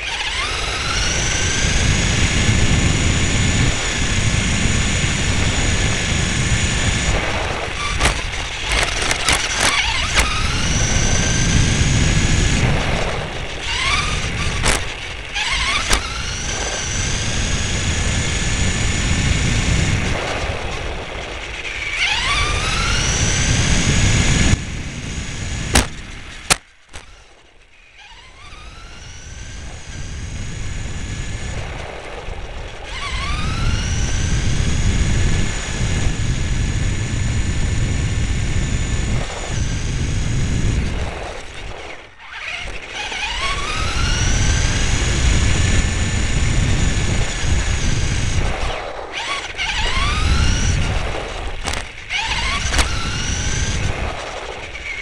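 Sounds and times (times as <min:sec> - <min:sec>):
toy car motor whine: 0:00.0 - 0:55.0
sharp clicks: 0:07.9 - 0:11.6, 0:13.6 - 0:17.2, 0:25.6 - 0:27.4, 0:47.6 - 0:55.0.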